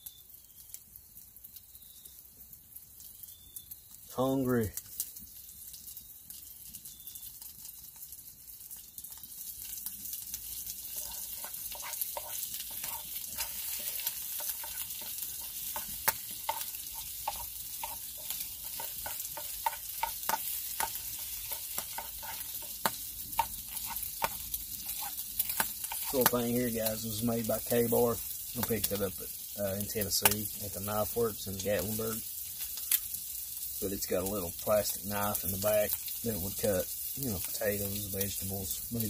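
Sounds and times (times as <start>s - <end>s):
food sizzling in a skillet: 0.0s - 39.0s
utensil scraping and tapping pan: 10.6s - 27.0s.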